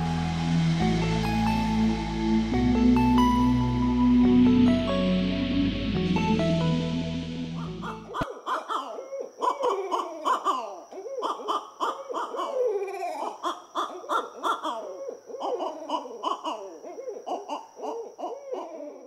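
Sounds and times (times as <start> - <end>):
owls hooting and cackling: 7.6 - 19.0.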